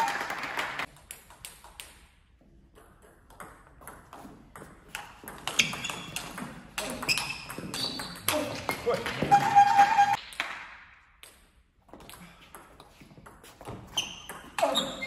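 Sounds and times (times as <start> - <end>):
table tennis ball rally: 2.9 - 11.4, 12.0 - 15.0.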